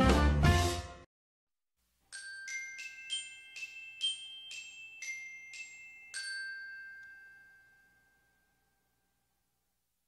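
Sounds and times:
bell-like jingle: 2.1s - 9.4s.

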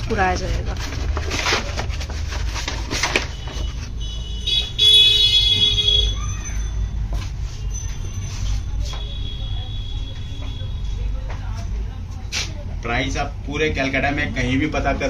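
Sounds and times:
shrill horn-like tone: 3.3s - 10.9s.

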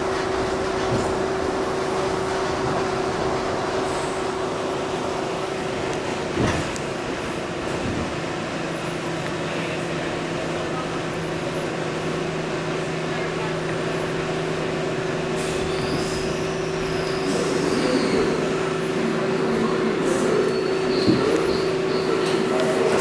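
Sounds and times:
subway car running gear hum: 0.0s - 23.0s
high brake squeals: 15.3s - 22.5s
subway car knock stopping: 20.2s - 23.0s.

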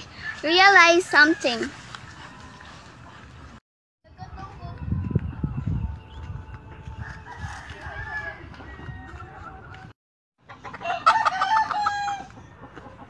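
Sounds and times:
rooster crowing: 7.0s - 9.9s, 10.8s - 12.3s.

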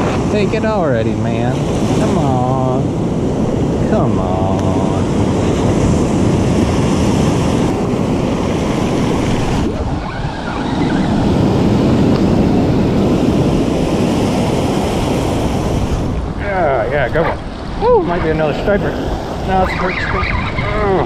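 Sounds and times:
ocean surf breaking: 0.0s - 21.0s
wind buffeting microphone: 0.0s - 21.0s.

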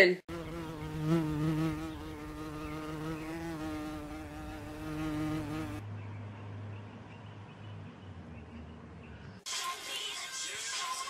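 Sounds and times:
flying insect buzzing: 0.3s - 5.8s.

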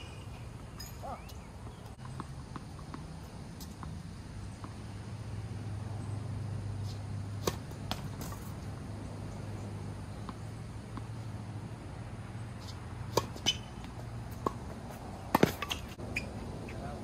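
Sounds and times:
tennis ball pops: 15.3s - 15.8s.

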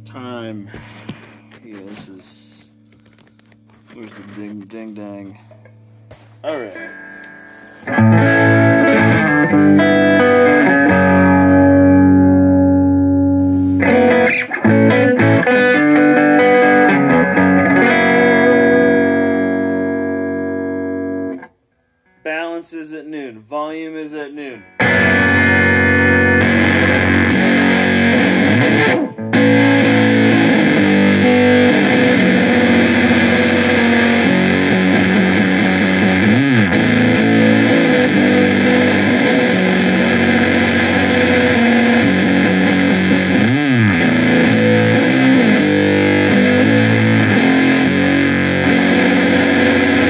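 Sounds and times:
distorted electric guitar chords: 5.4s - 22.2s, 24.5s - 50.0s
guitar slides along the neck: 11.7s - 12.4s, 13.4s - 14.5s.

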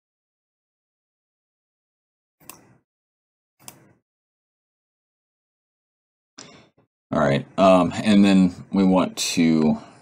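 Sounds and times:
computer mouse clicks: 2.4s - 2.8s, 3.6s - 4.0s.

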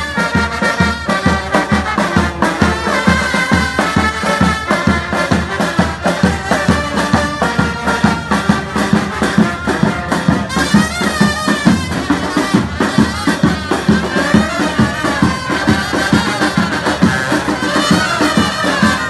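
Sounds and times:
brass instruments playing melody: 0.0s - 19.0s
steady drum beat: 0.0s - 19.0s.

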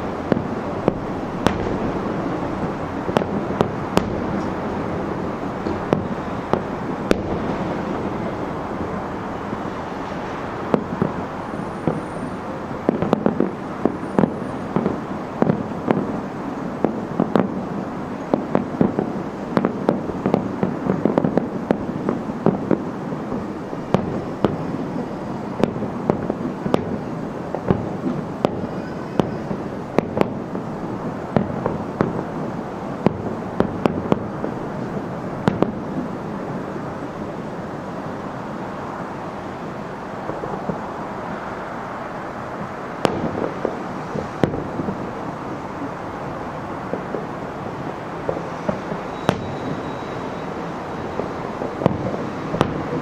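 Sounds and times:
continuous rolling noise: 0.0s - 53.0s
fireworks bangs and crackles: 0.0s - 53.0s.

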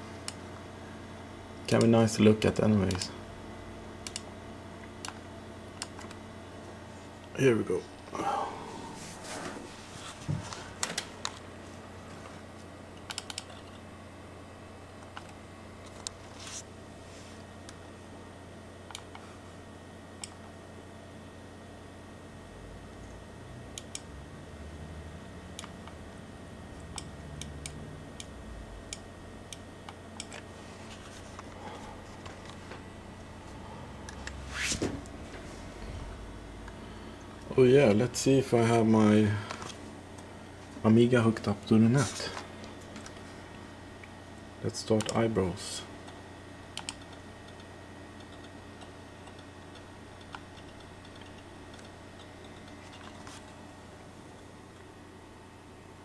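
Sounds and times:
computer hum: 0.0s - 56.0s
sharp computer clicks: 4.0s - 4.3s, 4.9s - 6.2s, 13.0s - 13.8s, 23.7s - 24.1s, 25.5s - 26.0s, 26.8s - 30.5s, 44.9s - 45.2s, 46.0s - 53.1s
mouse clicks: 5.0s - 5.2s, 13.0s - 13.8s.

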